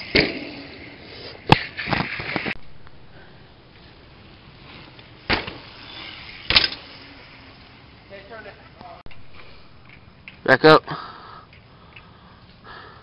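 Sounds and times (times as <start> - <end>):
bike wheels hitting ground: 0.0 - 2.8, 3.7 - 10.8
bike frame knocks and rattle: 5.2 - 5.6, 6.4 - 6.9.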